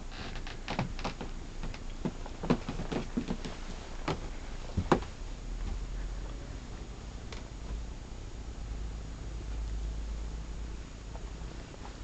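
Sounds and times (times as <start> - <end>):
footsteps in boat cabin: 0.1 - 5.8.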